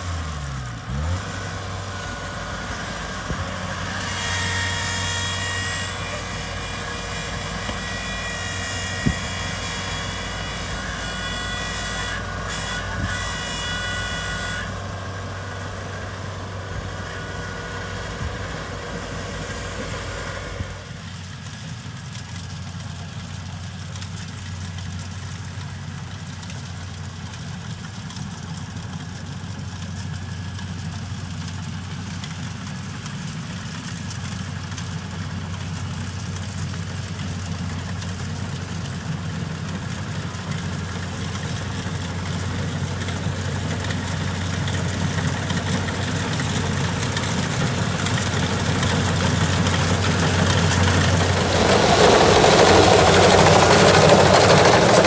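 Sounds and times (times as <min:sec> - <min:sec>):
combine harvester diesel engine: 0:00.0 - 0:55.0
high-pitched whine: 0:46.3 - 0:55.0.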